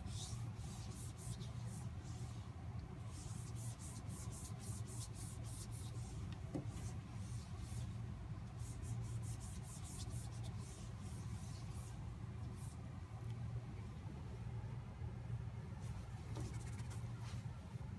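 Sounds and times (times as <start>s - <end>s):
cloth rubbing on board: 3.1s - 8.0s, 8.6s - 12.0s, 15.8s - 17.4s.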